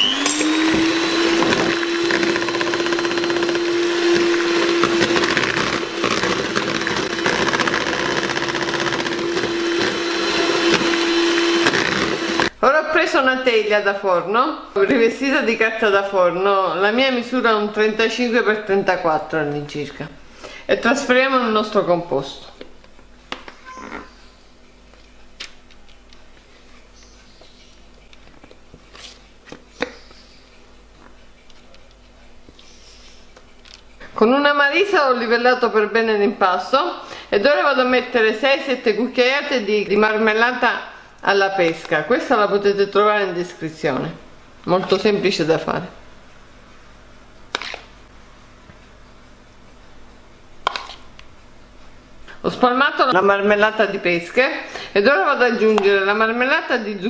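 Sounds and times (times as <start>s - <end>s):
electric hand mixer whirring: 0.0s - 12.5s.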